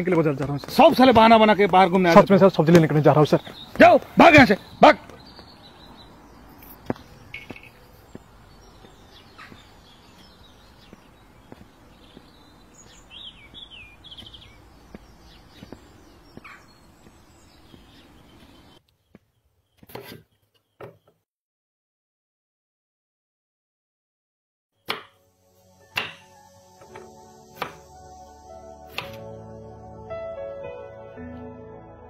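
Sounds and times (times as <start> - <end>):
small birds chirping: 0.0 - 21.2.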